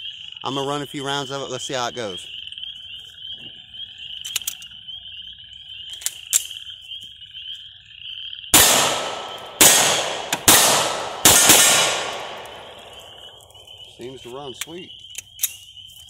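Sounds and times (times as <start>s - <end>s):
frogs croaking: 0.0s - 16.0s
pistol handling clicks: 4.2s - 4.7s, 5.9s - 6.6s, 14.6s - 15.6s
pistol shots: 8.6s - 13.8s.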